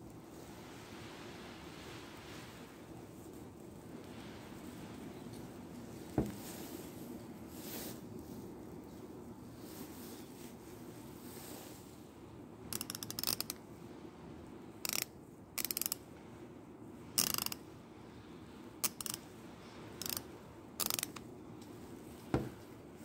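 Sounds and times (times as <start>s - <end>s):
torque wrench ratchet clicking: 12.7s - 13.6s, 14.8s - 16.0s, 17.2s - 17.6s, 18.8s - 19.2s, 20.0s - 20.2s, 20.8s - 21.2s.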